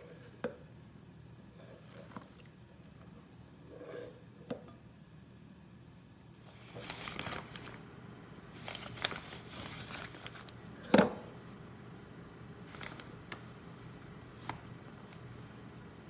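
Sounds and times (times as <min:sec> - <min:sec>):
spatula scraping batter in bowl: 0:03.7 - 0:04.2.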